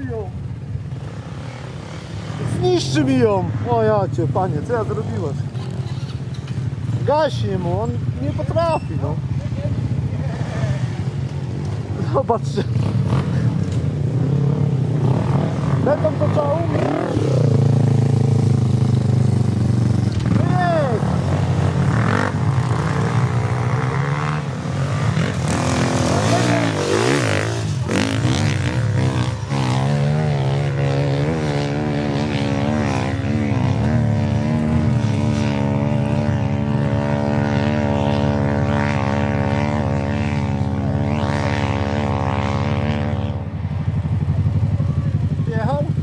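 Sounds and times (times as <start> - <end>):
atv engine at high revs: 9.7 - 46.0.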